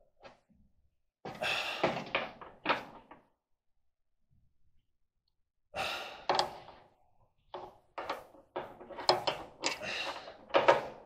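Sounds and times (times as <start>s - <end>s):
metal parts clanking and rattling: 7.6s - 11.0s.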